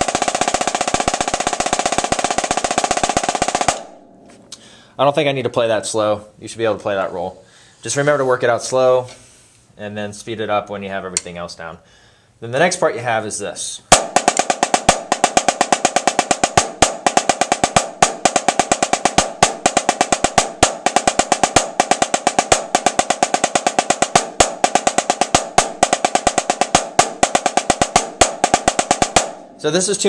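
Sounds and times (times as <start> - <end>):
snare drum played with sticks: 0.0 - 4.3, 13.9 - 30.0.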